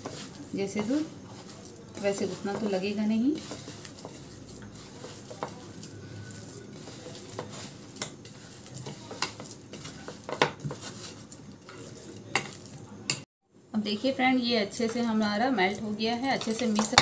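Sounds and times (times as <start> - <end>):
hands kneading dough: 0.0 - 13.2.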